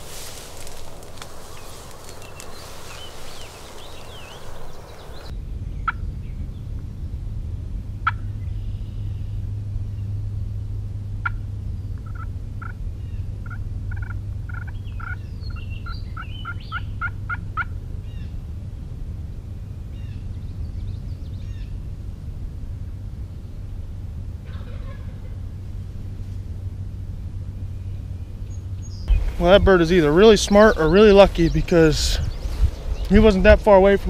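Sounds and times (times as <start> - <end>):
songbird chirps: 0.0 - 6.7, 14.5 - 17.1, 27.6 - 34.0
steady low hum: 0.0 - 34.0
turkey yelping: 13.4 - 15.2, 24.4 - 25.4.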